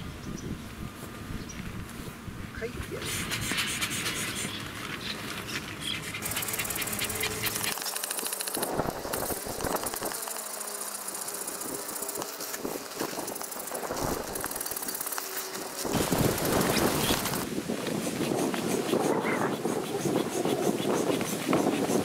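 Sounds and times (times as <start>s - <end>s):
high pulsing buzz: 5.8s - 22.0s.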